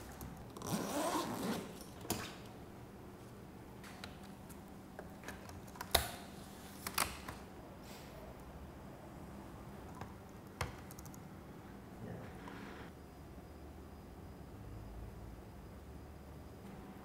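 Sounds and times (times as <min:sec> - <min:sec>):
laptop keys typing: 0:05.2 - 0:06.1, 0:09.9 - 0:11.2.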